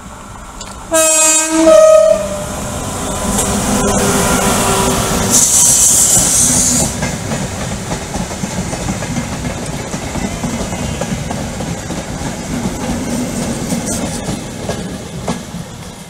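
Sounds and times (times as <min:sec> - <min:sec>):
train rumbling past: 0:00.0 - 0:16.0
locomotive hiss: 0:02.5 - 0:07.9.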